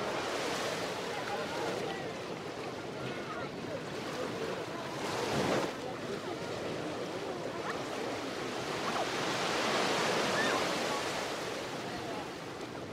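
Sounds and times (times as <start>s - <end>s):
faint distant voices: 0.0s - 12.9s
waves washing onto shingle: 3.9s - 6.0s.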